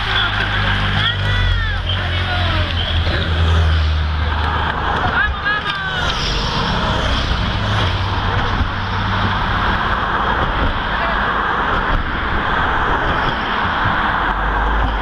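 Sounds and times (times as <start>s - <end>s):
people talking: 0.0s - 6.3s, 10.6s - 11.4s
cars driving past: 0.0s - 15.0s.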